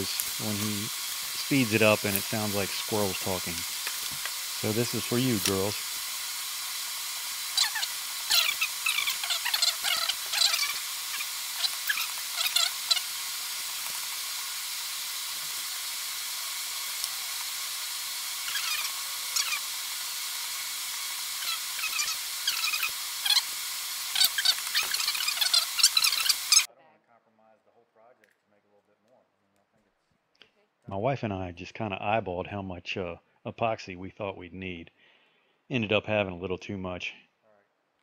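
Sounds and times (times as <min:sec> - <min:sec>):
steady hiss: 0:00.0 - 0:26.7
sped-up squeaky voices chattering: 0:07.5 - 0:13.1, 0:18.5 - 0:19.6, 0:24.1 - 0:26.7.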